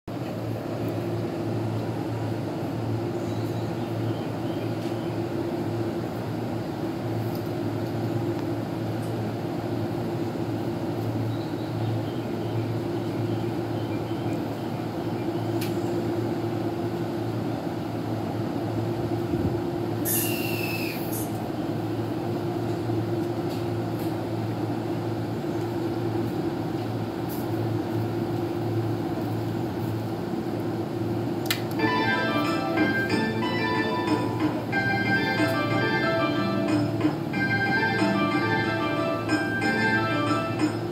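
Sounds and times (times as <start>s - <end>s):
electric train humming: 0.1s - 40.9s
short hiss: 20.0s - 21.3s.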